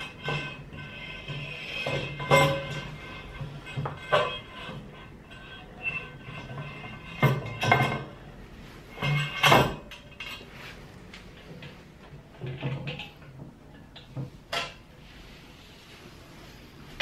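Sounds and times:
metal profiles knocking and clanking: 0.0 - 8.3, 8.9 - 10.5.

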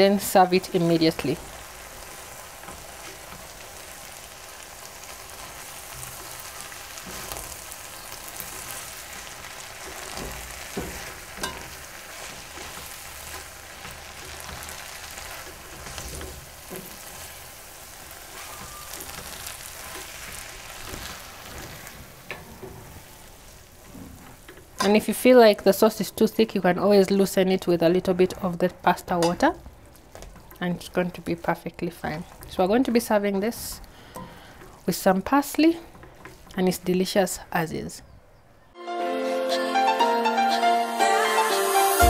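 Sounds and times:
food sizzling in a pan: 0.0 - 25.8.

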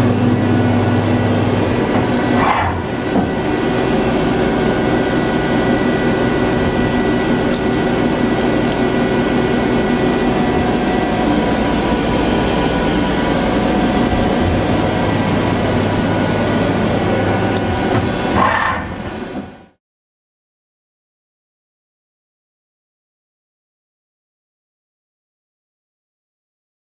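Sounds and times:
deeper hum: 0.0 - 19.8
lathe machine hum with whine: 0.0 - 19.8.

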